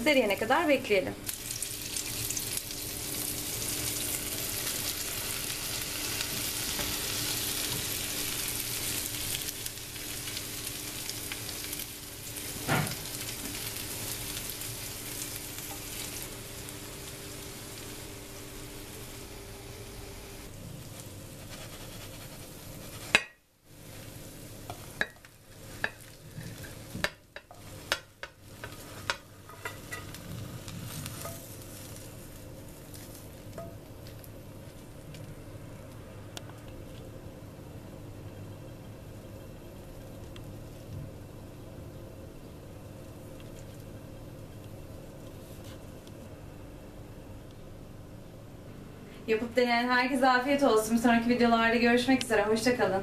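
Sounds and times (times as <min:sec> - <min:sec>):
omelette sizzling in a pan: 0:01.2 - 0:35.6.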